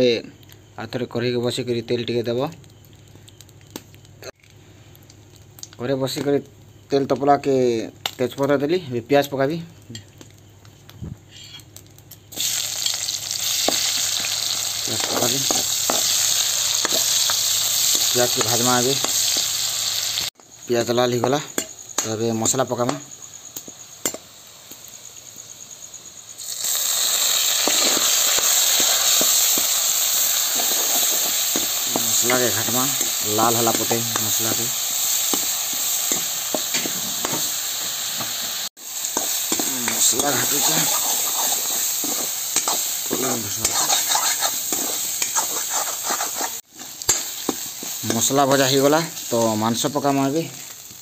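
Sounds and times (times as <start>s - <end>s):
onions frying in oil: 0.6s - 51.0s
loud sizzle of paste in oil: 12.3s - 51.0s
spoon scraping and knocking pan: 39.2s - 48.3s.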